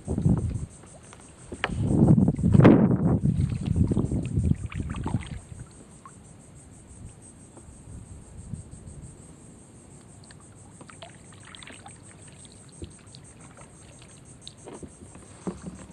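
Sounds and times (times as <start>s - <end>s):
insect trilling: 0.0s - 9.2s, 9.8s - 15.9s
paddle drips and small splashes: 0.4s - 2.6s, 3.2s - 6.2s, 10.2s - 15.9s.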